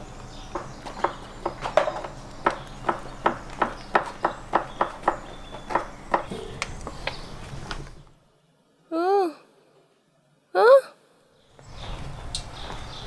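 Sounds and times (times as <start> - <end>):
knife chopping on wooden board: 0.5 - 6.5.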